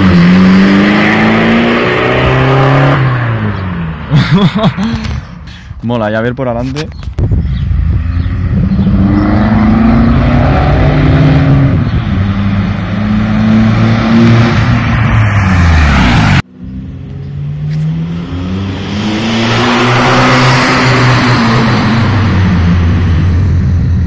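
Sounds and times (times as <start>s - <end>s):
diesel engine accelerating: 7.4s - 24.0s.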